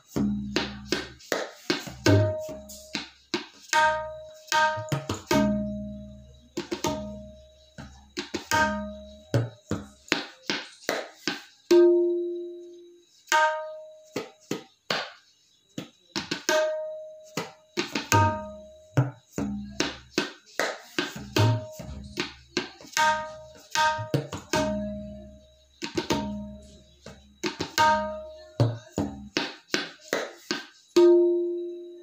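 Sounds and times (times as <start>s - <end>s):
tabla high strokes: 0.0s - 15.2s, 16.2s - 31.8s
tabla deep bass strokes: 0.1s - 1.2s, 1.8s - 3.0s, 3.8s - 10.0s, 18.0s - 20.1s, 21.2s - 29.3s.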